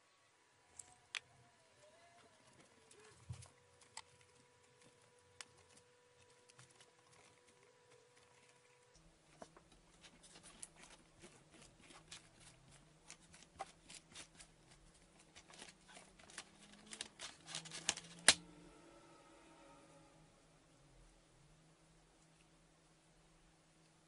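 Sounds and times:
plastic film crackling: 10.0s - 18.4s
sharp plastic crack: 15.4s - 18.4s.

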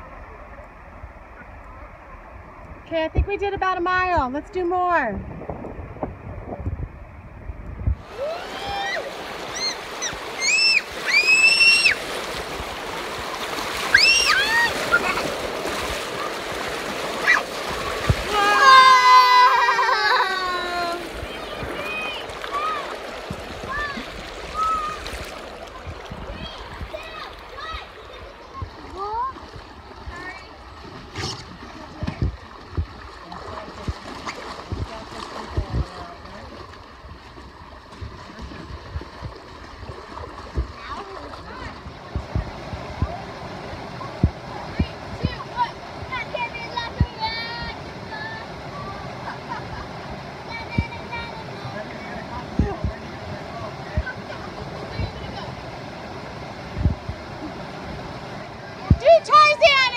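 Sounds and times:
river rapids rushing and splashing: 8.0s - 29.3s
splashing of people wading: 8.0s - 59.9s
water running over rocks: 8.0s - 59.9s
child squealing: 8.2s - 12.0s, 13.9s - 15.1s, 18.3s - 21.0s.

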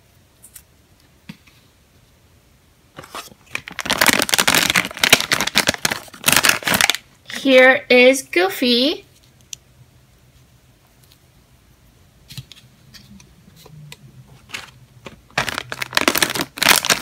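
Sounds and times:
foil bag crinkling and tearing: 3.2s - 7.1s, 15.3s - 17.0s.

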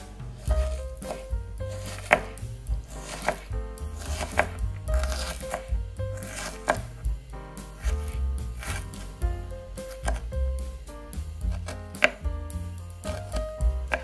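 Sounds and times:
background music: 0.0s - 14.0s
knife chopping on cutting board: 0.4s - 7.0s, 7.7s - 9.2s, 9.9s - 10.3s, 11.5s - 12.3s, 13.1s - 14.0s.

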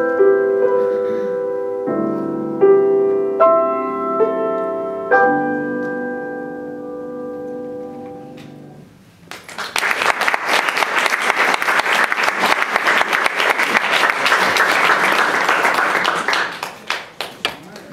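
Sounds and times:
audience applauding: 9.3s - 17.9s.

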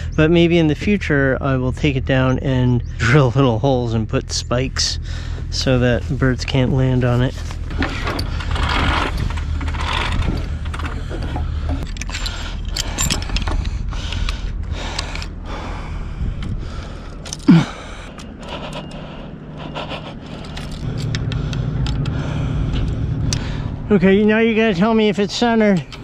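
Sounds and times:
low rumble: 0.0s - 26.0s
rigging knocks and rattles: 6.8s - 15.4s.

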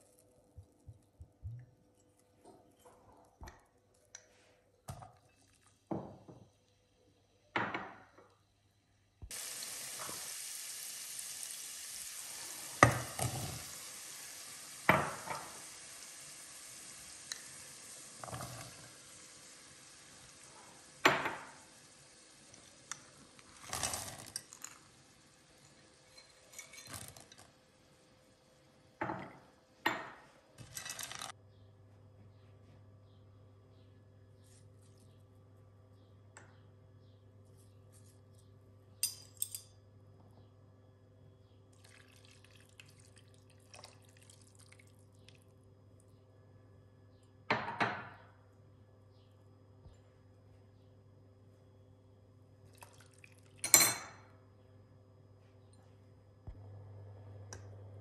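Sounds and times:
onion sizzling in hot oil: 9.3s - 26.6s
bowl and utensil clinking on pot: 26.0s - 27.4s.

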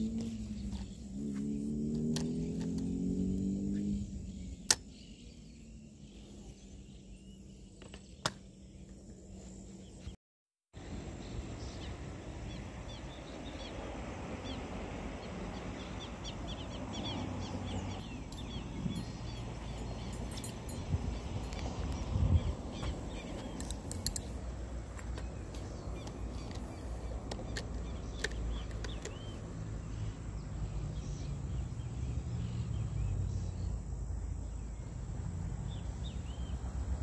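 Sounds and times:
bird chirps: 0.0s - 10.2s, 15.2s - 24.5s
steady outdoor hiss: 0.0s - 10.2s, 10.8s - 37.0s.

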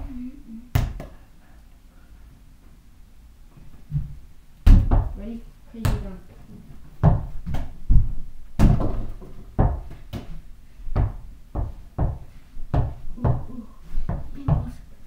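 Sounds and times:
basketball dribbling on floor: 4.7s - 5.2s, 5.8s - 6.1s, 7.0s - 14.8s.

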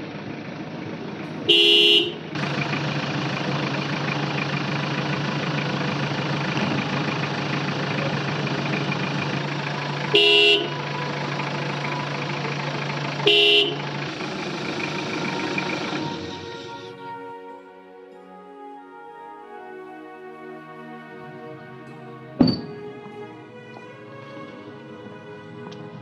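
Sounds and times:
engine idling: 0.0s - 17.2s
car horn honks: 1.4s - 2.6s, 9.4s - 17.5s.

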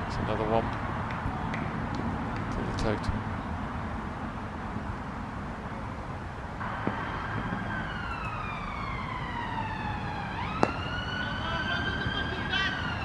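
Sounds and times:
outdoor background noise: 0.0s - 13.0s
siren wailing: 6.6s - 13.0s.

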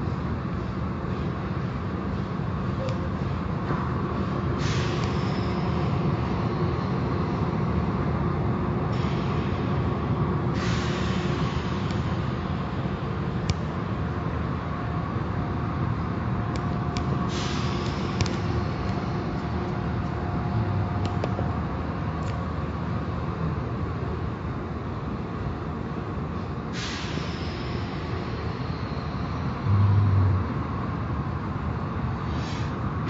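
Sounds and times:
car wash machinery rumbling: 29.5s - 32.1s.

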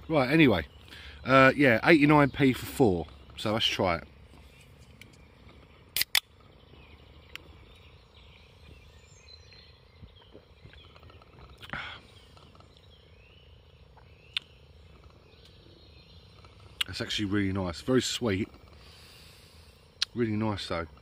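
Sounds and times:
faint bird chirps: 0.0s - 21.0s
sharp clicks: 6.0s - 6.3s.

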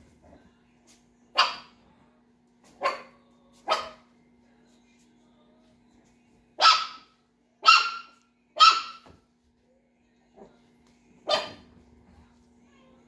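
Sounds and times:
small dog barking: 1.3s - 1.8s, 2.8s - 4.1s, 6.6s - 9.1s, 11.2s - 11.7s.

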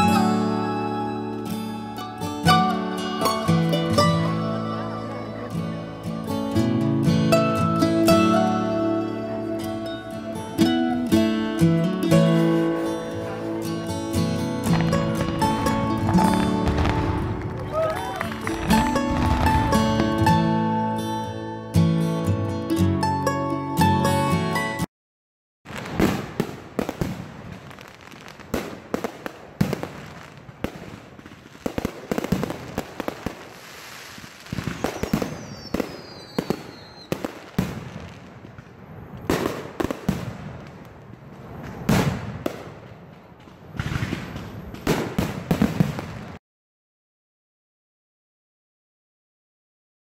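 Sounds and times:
fireworks crackling: 0.0s - 21.3s, 25.7s - 46.4s
fireworks bursts: 14.6s - 20.8s, 25.7s - 46.4s
falling firework whistle: 16.2s - 19.5s, 33.6s - 37.9s.

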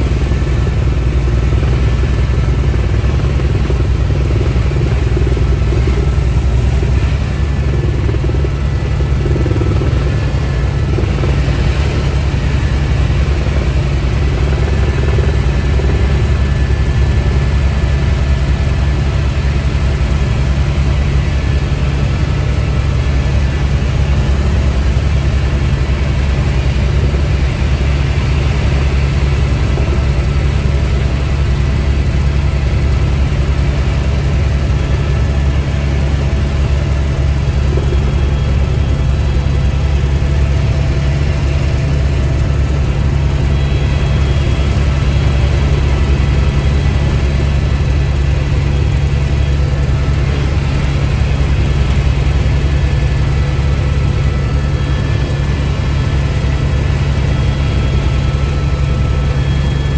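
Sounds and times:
helicopter engine and rotor drone: 0.0s - 59.9s.

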